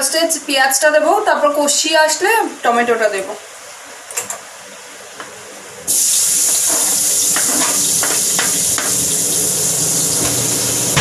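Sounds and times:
onions sizzling in hot oil: 5.9 - 11.0.

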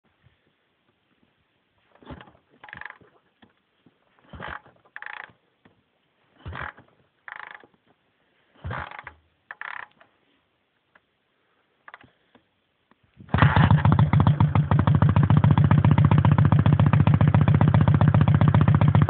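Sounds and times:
kickstart lever creaking rattle: 2.0 - 3.1, 4.3 - 5.4, 6.4 - 7.8, 8.6 - 10.0.

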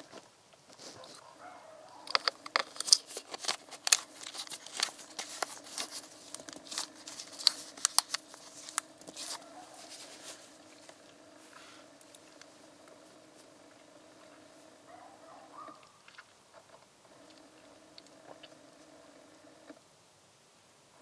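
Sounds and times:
faint steady hum: 0.0 - 21.0
plastic bottle cap clicks and crinkles: 1.9 - 10.1.

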